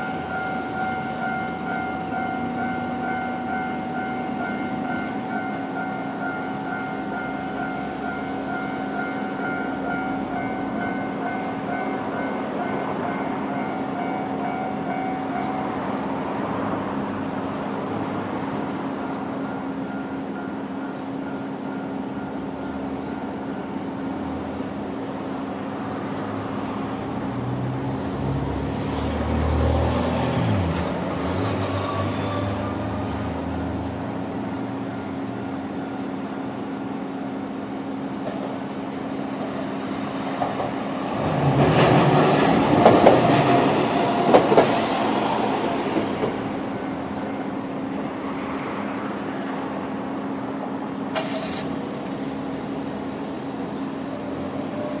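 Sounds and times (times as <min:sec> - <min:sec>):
level-crossing alarm ringing: 0:00.0 - 0:17.1, 0:18.5 - 0:24.8, 0:42.0 - 0:48.2
train wheels clacking over rail joints: 0:40.3 - 0:46.6.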